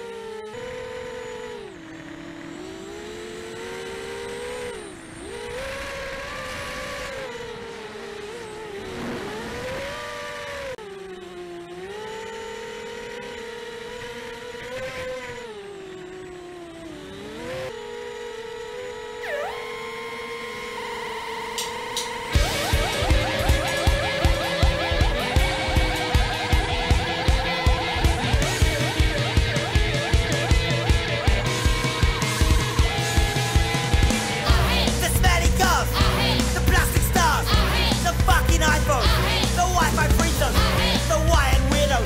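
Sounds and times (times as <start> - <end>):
quadcopter motors whining: 0.0 - 42.0.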